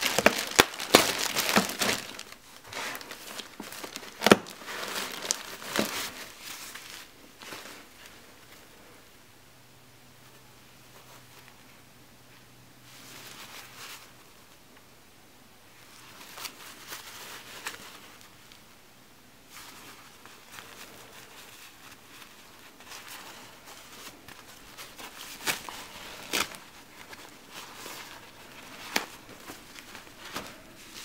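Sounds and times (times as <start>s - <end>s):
diapers rustling and crinkling: 0.0s - 8.7s, 15.8s - 18.6s, 19.5s - 31.0s.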